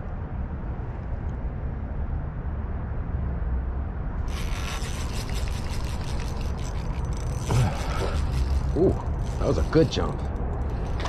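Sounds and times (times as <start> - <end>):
spinning reel clicking rattle: 4.2 - 11.0.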